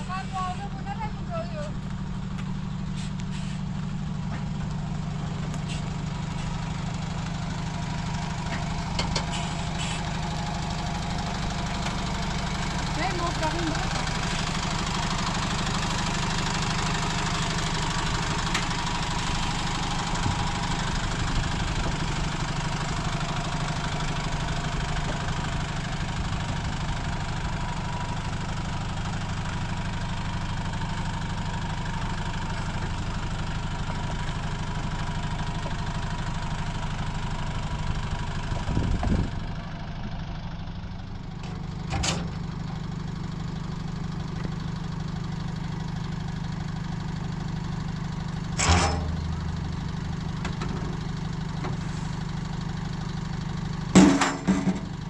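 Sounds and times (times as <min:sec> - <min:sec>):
truck engine idling: 0:00.0 - 0:55.0
tailgate clank: 0:48.6 - 0:49.6, 0:53.9 - 0:54.9.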